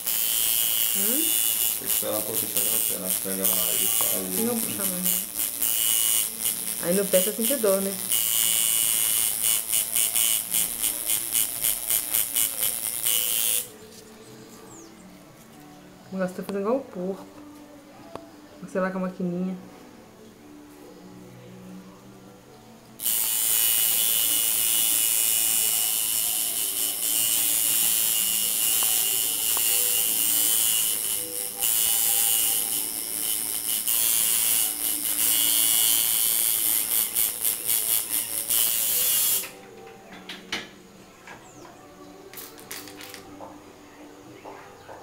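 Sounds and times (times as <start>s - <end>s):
tattoo machine buzzing: 0.0s - 13.8s, 23.0s - 39.6s.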